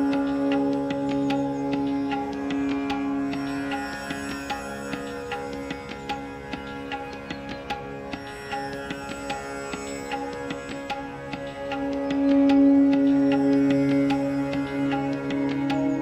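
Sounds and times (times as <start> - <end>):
steady drone: 0.0 - 16.0
sustained tone: 11.5 - 16.0.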